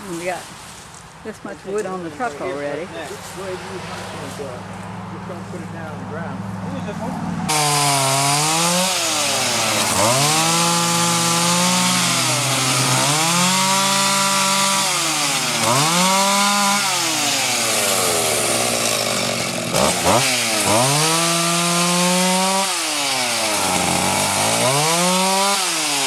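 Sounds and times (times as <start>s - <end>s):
chainsaw revving: 7.5s - 26.0s.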